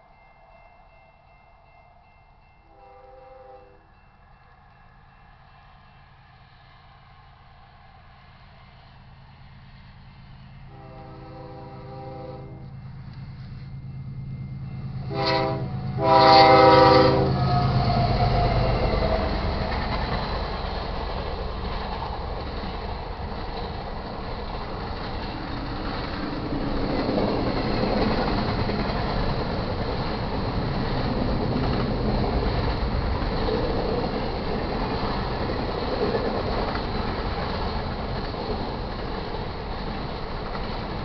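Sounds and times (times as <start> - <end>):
train horn chord: 2.7 - 4.0, 10.6 - 18.3
locomotive engine drone: 3.8 - 41.0
train wheels rumbling on rail: 4.6 - 41.0.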